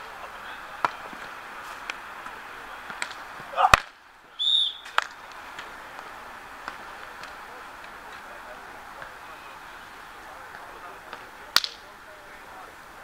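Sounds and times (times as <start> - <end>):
hands slapping volleyball: 2.8 - 4.0, 11.1 - 11.8
person shouting: 3.5 - 3.8
referee's whistle blast: 4.4 - 4.9.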